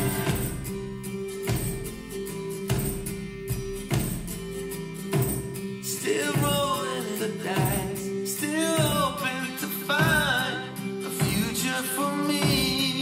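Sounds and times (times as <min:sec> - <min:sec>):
person singing: 0:00.0 - 0:00.6, 0:05.8 - 0:13.0
guitar music through speakers: 0:00.0 - 0:13.0.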